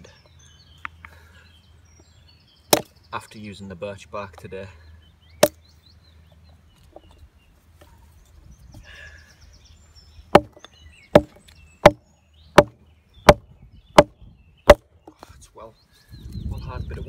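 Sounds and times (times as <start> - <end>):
axe chopping wood: 2.7 - 3.0, 5.4 - 5.6, 10.3 - 13.4, 14.7 - 14.9.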